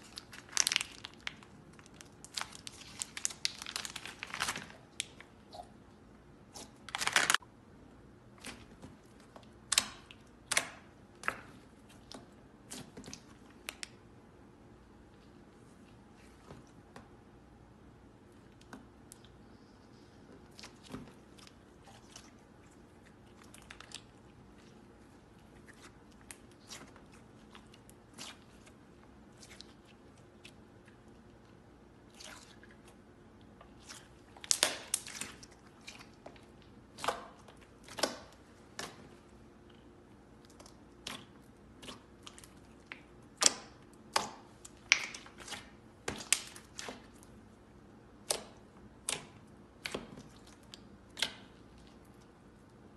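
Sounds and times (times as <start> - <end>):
slime squeezed with wet pops: 40.5 - 47.2.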